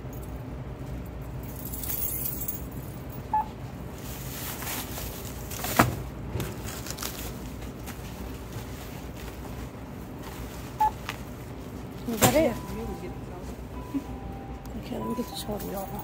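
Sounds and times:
checkout scanner beep: 3.3 - 3.6, 10.8 - 11.0, 12.2 - 16.0
plastic bag rustling: 3.9 - 13.7.

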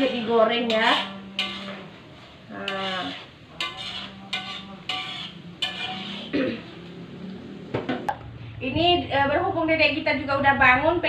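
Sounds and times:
shallots frying in a wok: 0.0 - 6.8
metal spatula scraping a wok: 0.0 - 7.0.

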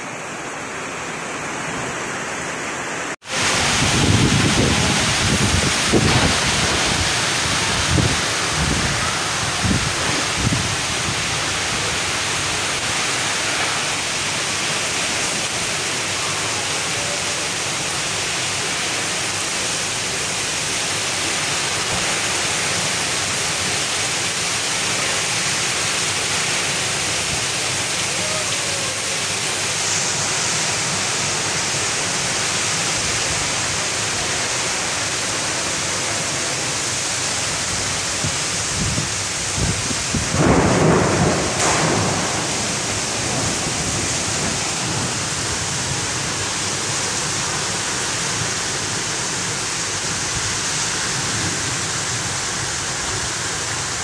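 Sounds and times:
heavy rain hissing: 0.0 - 54.0
wind gusts on microphone: 3.3 - 12.8, 37.7 - 46.4.

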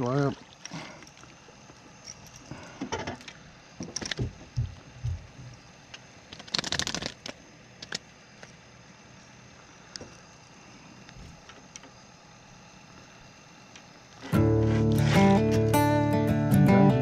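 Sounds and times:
dull knocks: 3.8 - 5.6
fish splashing and flapping: 6.3 - 7.3.

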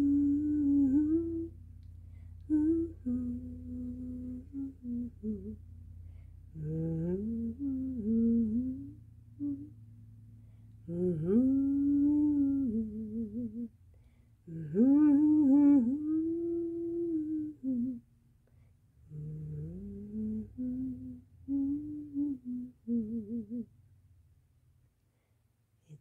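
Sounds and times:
person humming a slow tune: 0.0 - 1.6, 2.4 - 5.6, 6.5 - 9.8, 10.8 - 13.7, 14.4 - 18.0, 19.1 - 23.7.

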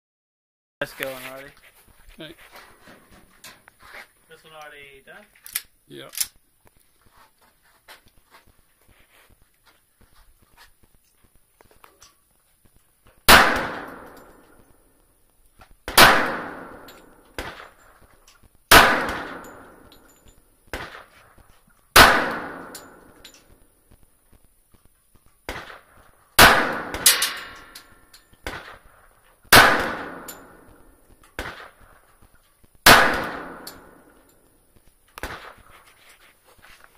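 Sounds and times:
pistol shots with echo: 13.3 - 14.6, 15.8 - 17.8, 18.7 - 20.0, 21.9 - 23.2, 25.5 - 27.8, 28.4 - 32.0, 32.8 - 34.2.

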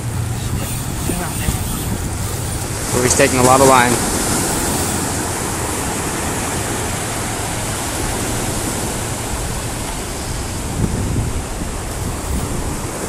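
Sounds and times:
ocean surf breaking: 0.0 - 13.0
wind buffeting microphone: 0.0 - 13.0.

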